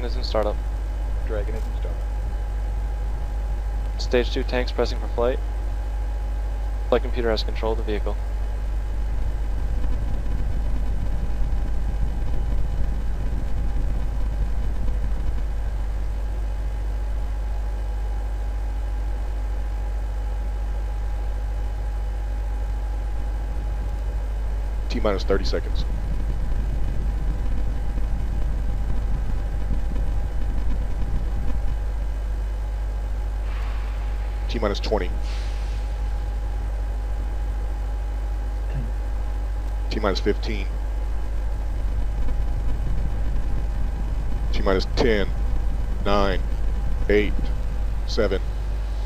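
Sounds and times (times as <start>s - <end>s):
faint hum tones: 0.0s - 49.0s
low rumble and hiss: 0.0s - 49.0s
low rumble: 38.6s - 49.0s.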